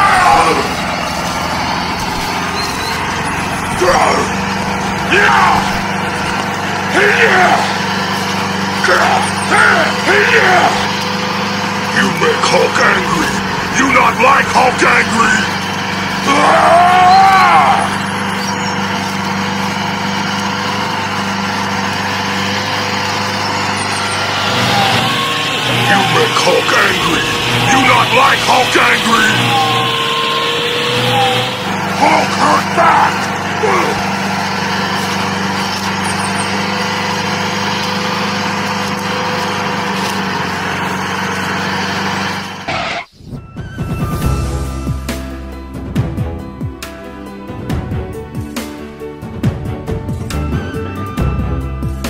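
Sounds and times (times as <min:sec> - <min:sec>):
tractor engine running: 0:00.0 - 0:52.0
small motor humming: 0:15.3 - 0:42.7.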